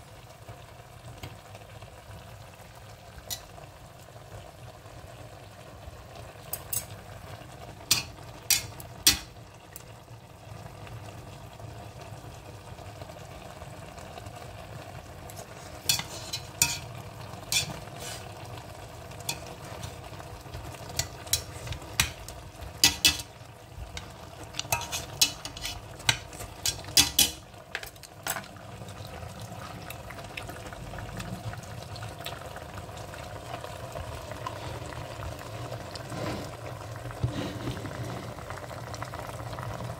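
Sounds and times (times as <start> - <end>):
food sizzling in a pot: 0.0 - 39.9.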